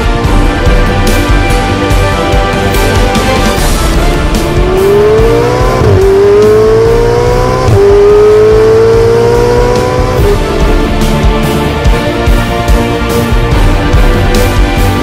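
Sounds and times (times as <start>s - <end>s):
background music: 0.0s - 15.0s
car engine accelerating hard: 3.9s - 11.2s.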